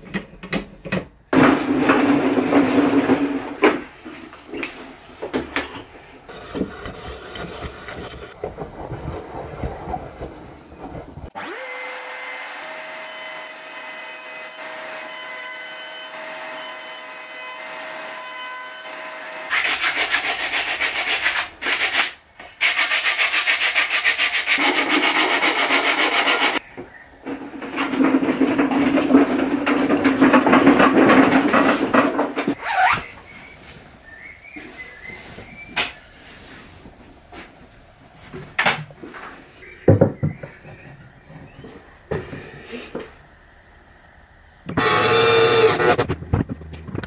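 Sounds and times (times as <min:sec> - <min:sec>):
hand sanding wood: 0:06.3 - 0:08.4, 0:19.5 - 0:26.6.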